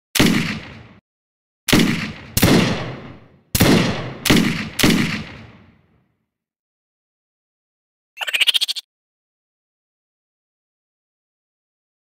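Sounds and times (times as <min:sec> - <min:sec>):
pistol gunshots with echo: 0:00.2 - 0:01.0, 0:01.7 - 0:05.9.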